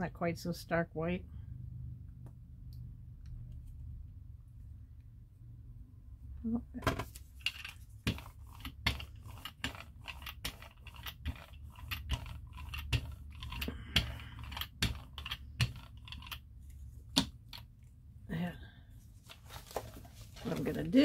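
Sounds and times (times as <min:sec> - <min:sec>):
brayer rolling over tacky paint: 0:07.0 - 0:17.2.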